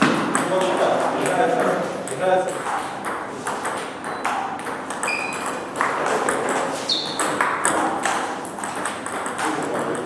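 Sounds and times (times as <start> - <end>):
table tennis ball clicking: 0.4 - 10.0
short high squeaks: 5.0 - 5.4, 6.8 - 7.2.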